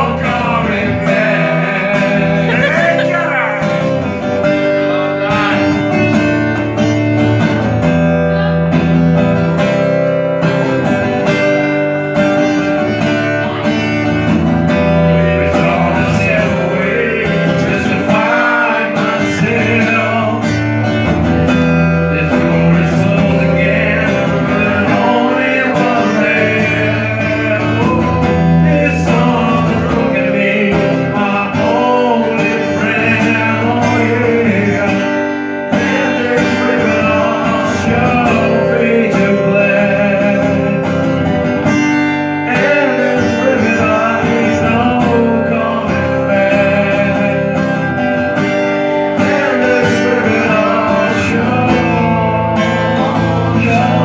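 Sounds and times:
acoustic guitar strumming: 0:00.0 - 0:54.0
harmonica melody: 0:01.2 - 0:07.2.

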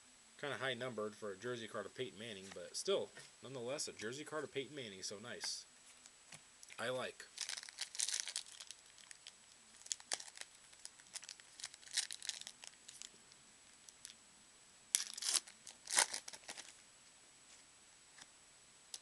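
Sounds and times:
foil wrapper ripping: 0:07.3 - 0:13.1, 0:14.9 - 0:16.8
foil wrapper crinkling: 0:07.3 - 0:13.2, 0:14.9 - 0:16.8.

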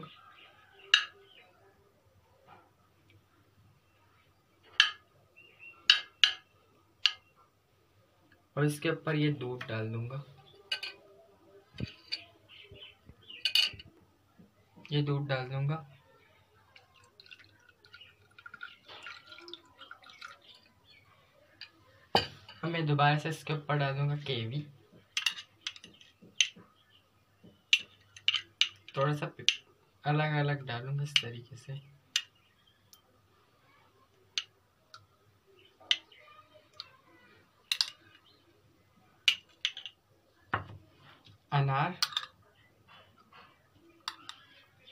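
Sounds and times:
metal spoon tapping glass dish: 0:00.9 - 0:01.2, 0:05.9 - 0:07.3
milk splashing and dripping: 0:16.7 - 0:20.9.

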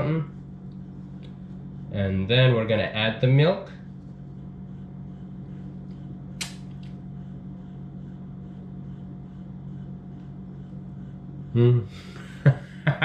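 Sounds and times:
low mechanical hum: 0:00.0 - 0:13.0
sharp click: 0:06.4 - 0:07.0.

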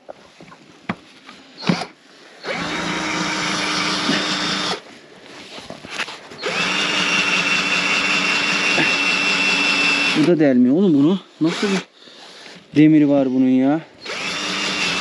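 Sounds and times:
cordless drill running: 0:01.6 - 0:04.8, 0:06.4 - 0:10.3, 0:11.4 - 0:11.9, 0:14.0 - 0:15.0.

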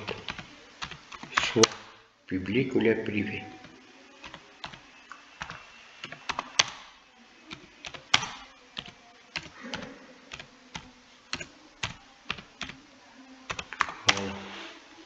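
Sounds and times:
computer keyboard keystrokes clicking: 0:00.0 - 0:01.9, 0:05.4 - 0:06.9, 0:07.9 - 0:12.8, 0:13.5 - 0:14.2.

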